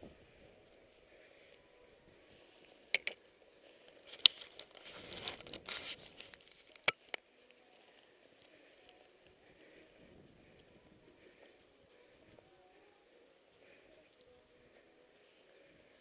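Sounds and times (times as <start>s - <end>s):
fabric and snow rustling: 3.6s - 6.8s.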